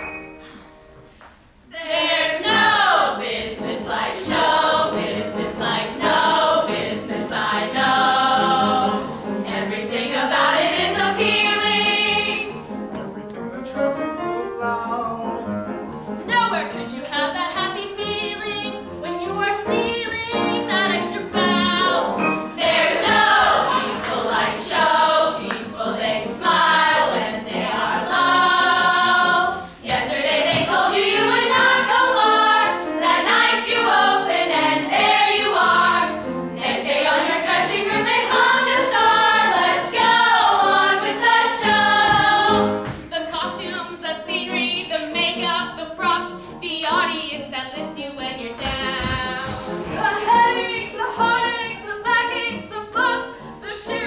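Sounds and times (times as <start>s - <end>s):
young performers singing in chorus: 1.7s - 12.6s, 20.3s - 43.6s, 48.6s - 54.0s.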